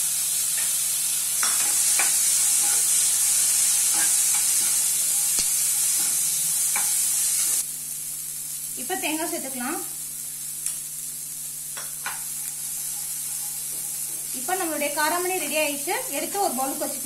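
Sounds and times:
food sizzling in hot oil: 0.0 - 17.0
utensil scraping a pan: 12.4 - 14.2.

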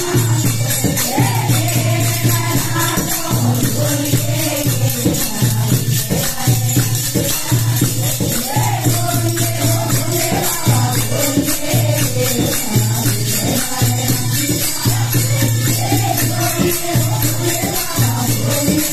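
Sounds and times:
jingling percussion beat: 0.0 - 18.9
women singing devotional song: 0.0 - 18.9
hand-clapping: 5.0 - 7.4.

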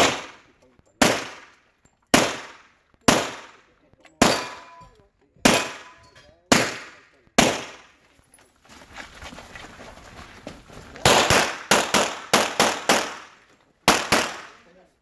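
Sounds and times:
pistol shots with echo: 0.0 - 8.0, 11.0 - 14.7.

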